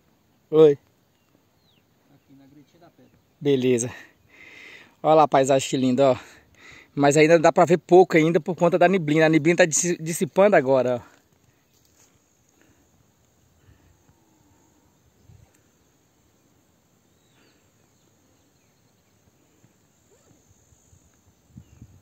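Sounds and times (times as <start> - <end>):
soft rustles or footfalls: 11.2 - 12.3.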